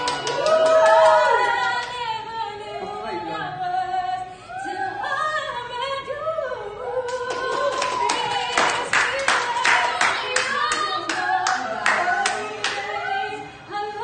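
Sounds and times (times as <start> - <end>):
hand clapping: 0.0 - 1.2, 7.1 - 12.8
woman singing slow melody: 0.0 - 14.0.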